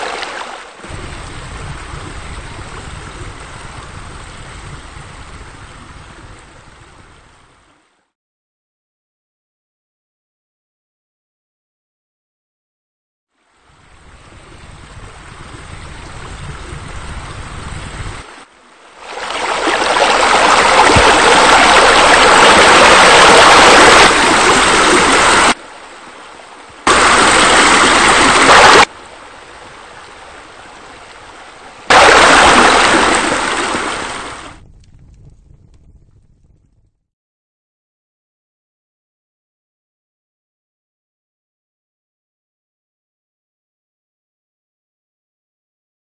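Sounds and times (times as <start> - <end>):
rushing water: 0.0 - 8.0, 13.4 - 34.6.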